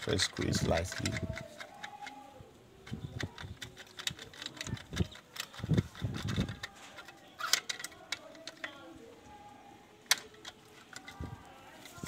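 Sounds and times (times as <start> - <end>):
handling noise: 0.0 - 12.0
plastic switch cover clicking: 10.1 - 11.2.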